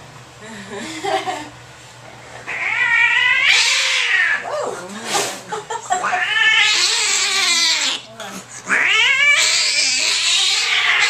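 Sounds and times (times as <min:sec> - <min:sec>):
cat yowling angrily: 0:02.5 - 0:04.5, 0:06.0 - 0:08.1, 0:08.7 - 0:11.0.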